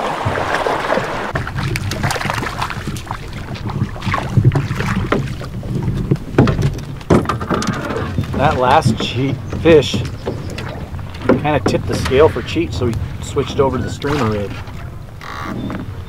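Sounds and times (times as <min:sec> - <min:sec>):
knocks and rustling in boat: 0:00.0 - 0:16.0
wind rumbling on microphone: 0:00.0 - 0:16.0.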